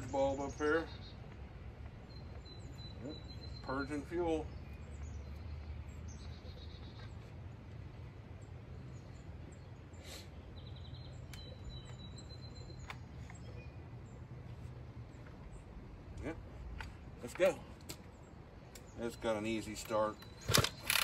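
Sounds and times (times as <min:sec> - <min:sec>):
faint bird chirps: 0:02.0 - 0:07.3, 0:08.8 - 0:14.0
soft clicks: 0:12.7 - 0:13.6.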